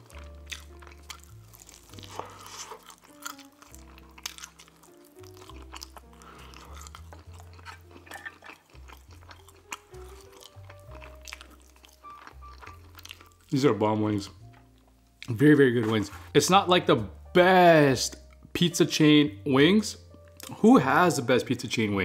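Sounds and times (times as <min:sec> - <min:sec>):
man chewing and lip-smacking: 0:00.0 - 0:13.6.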